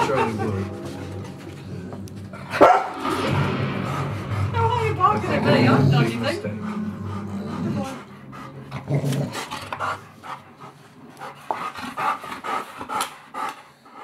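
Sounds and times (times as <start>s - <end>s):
dogs panting and snuffling: 6.6s - 14.0s.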